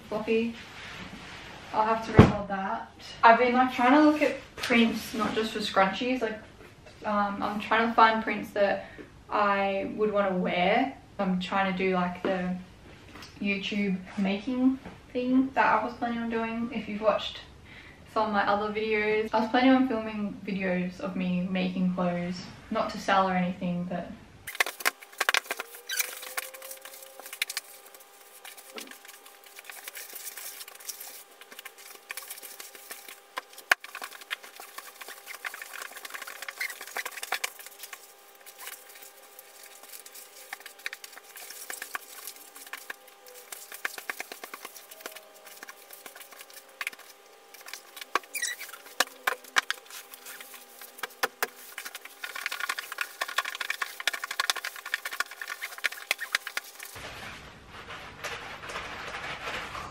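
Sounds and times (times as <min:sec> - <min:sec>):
fabric rustling and scraping: 0:00.5 - 0:02.0, 0:24.5 - 0:59.9.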